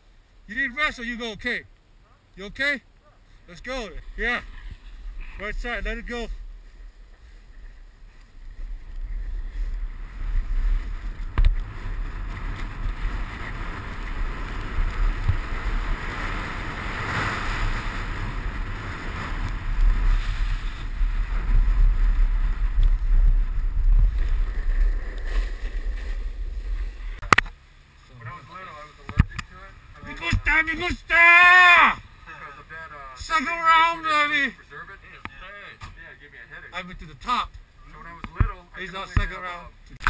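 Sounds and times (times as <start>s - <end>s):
ski edges scraping packed snow: 3.7s - 27.3s
wind buffeting microphone: 3.9s - 27.4s.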